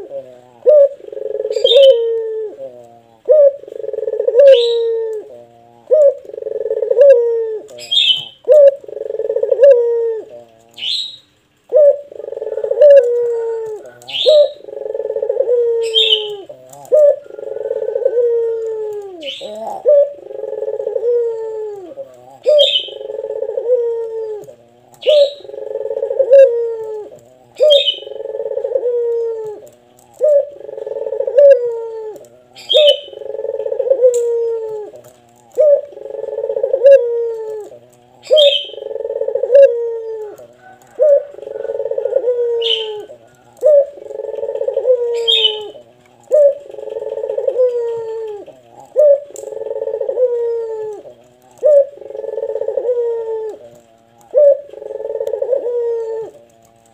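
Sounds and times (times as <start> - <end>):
dove cooing: 0.0 - 56.9.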